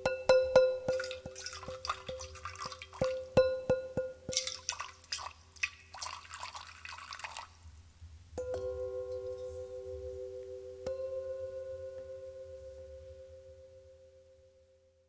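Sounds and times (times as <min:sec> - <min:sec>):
dripping watery sounds: 0:00.9 - 0:03.4, 0:04.3 - 0:07.6.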